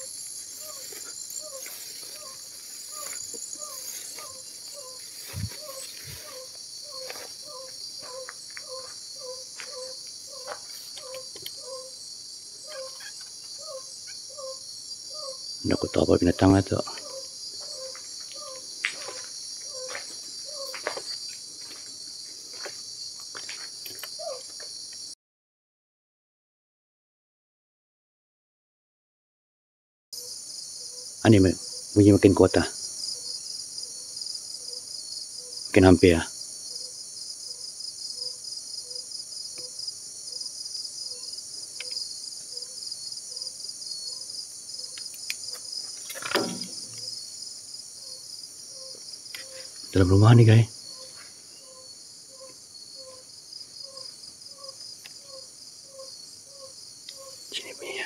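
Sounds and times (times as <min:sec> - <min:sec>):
animal low call: 0:00.0 - 0:12.0, 0:12.7 - 0:20.8
crickets chirping: 0:00.0 - 0:25.2, 0:30.2 - 0:58.0
knocks: 0:46.3 - 0:47.0.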